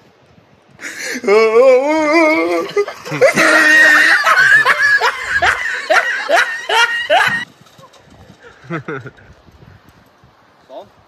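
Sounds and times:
man laughing: 0:00.8 - 0:07.4, 0:08.6 - 0:09.2
man whooping and shouting: 0:01.1 - 0:04.8.

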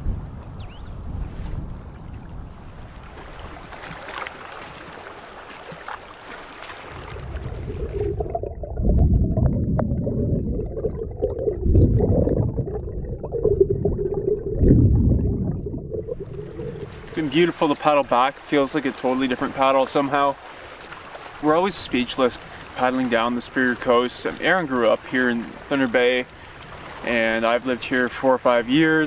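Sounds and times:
wind: 0:00.0 - 0:11.9, 0:15.9 - 0:29.0
water lapping: 0:01.8 - 0:09.1, 0:15.9 - 0:29.0
underwater rushing from paddle strokes: 0:02.5 - 0:29.0.

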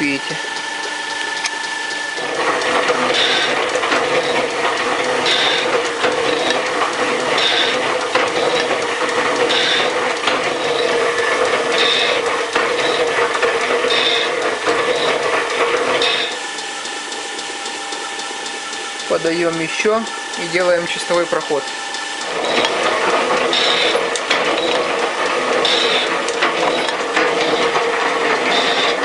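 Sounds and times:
metal shaper clattering: 0:02.2 - 0:16.4, 0:19.5 - 0:29.0.

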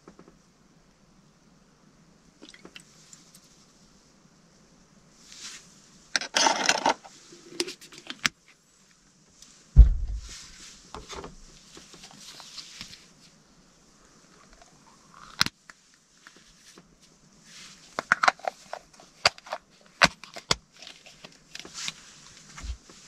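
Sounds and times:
dull thump: 0:09.8 - 0:11.5.

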